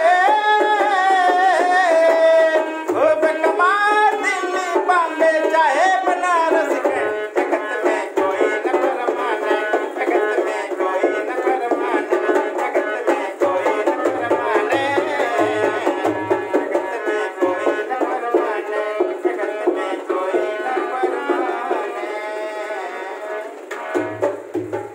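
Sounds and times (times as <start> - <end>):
harmonium melody: 0.0 - 24.9
hand drum bass strokes: 23.4 - 24.9.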